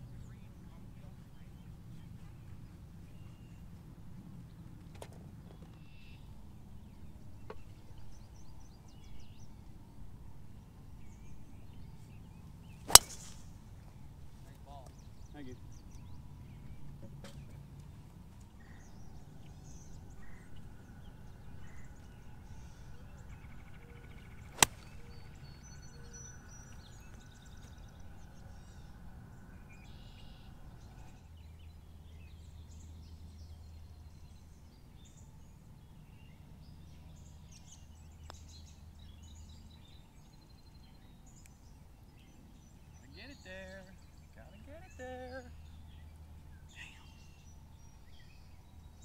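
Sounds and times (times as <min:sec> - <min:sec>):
birds chirping: 0:04.4 - 0:49.0
golf club striking ball: 0:12.9 - 0:13.6, 0:24.6 - 0:25.2.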